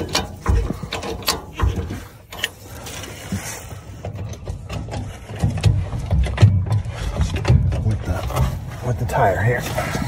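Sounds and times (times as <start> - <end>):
metallic clicks and clunks: 0.0 - 8.9
dull low thumps: 3.9 - 9.0.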